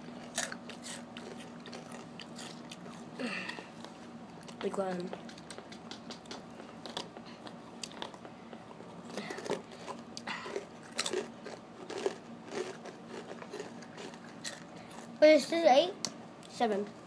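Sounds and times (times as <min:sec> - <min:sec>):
tortilla chips crunching when chewed: 0:00.0 - 0:15.2.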